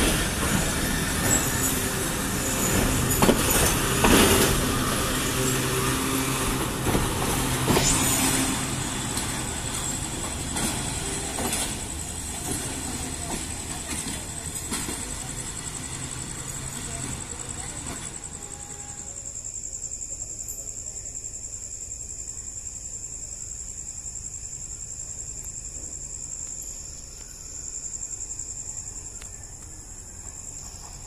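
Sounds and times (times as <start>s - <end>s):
train wheels knocking over rail joints: 0.0s - 18.7s.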